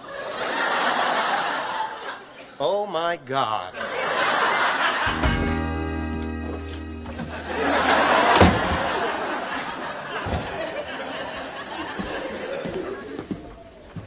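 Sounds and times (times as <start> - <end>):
studio audience laughing: 0.0 - 2.6, 3.7 - 5.2, 7.2 - 13.3.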